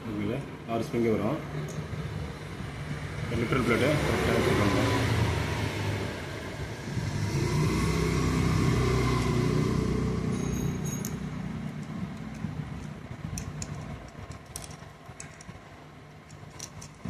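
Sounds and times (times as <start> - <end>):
motor vehicle engine running: 6.6 - 17.0
metallic clicks and clinks: 10.3 - 17.0.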